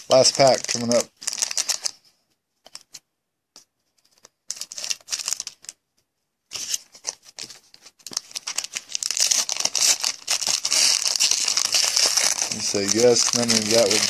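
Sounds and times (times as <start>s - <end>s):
foil wrapper crinkling and tearing: 0.1s - 2.0s, 4.2s - 5.8s, 6.6s - 14.0s.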